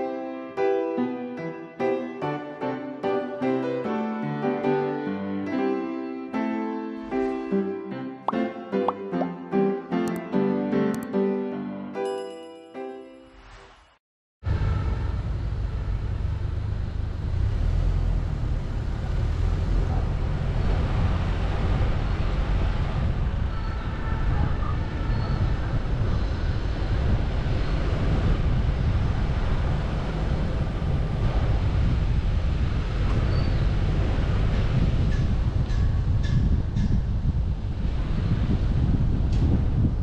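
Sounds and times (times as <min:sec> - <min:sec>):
vehicle road and wind rumble: 0:14.4 - 0:40.0.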